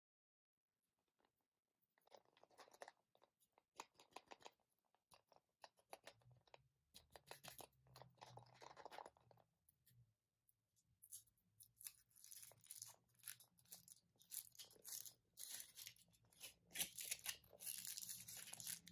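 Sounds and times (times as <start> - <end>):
foil wrapper crinkling: 11.8 - 18.9.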